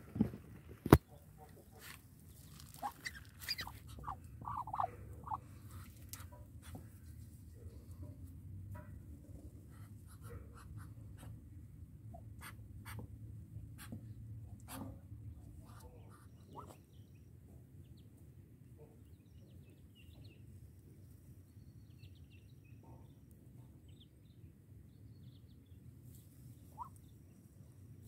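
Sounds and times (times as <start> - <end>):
straw rustling and clicking: 0.1 - 7.9
ducklings peeping: 0.9 - 6.8, 9.7 - 11.4, 15.4 - 18.1, 26.6 - 27.3.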